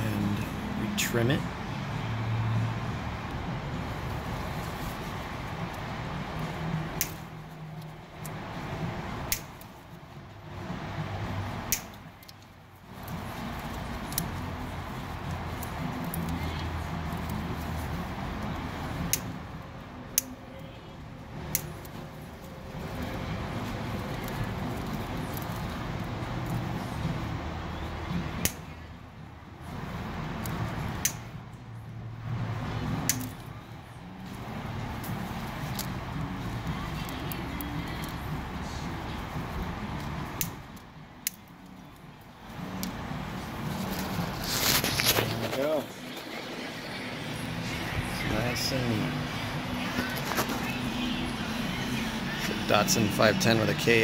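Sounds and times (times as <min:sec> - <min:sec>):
side cutters snipping clicks: 0:07.0 - 0:07.2, 0:09.3 - 0:09.7, 0:11.6 - 0:14.3, 0:30.4 - 0:31.3, 0:33.0 - 0:33.4, 0:40.0 - 0:41.5.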